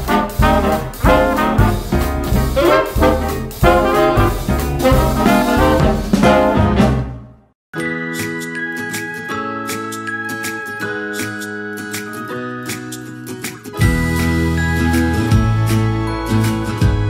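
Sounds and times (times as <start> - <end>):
swing music with brass: 0.0 - 7.4.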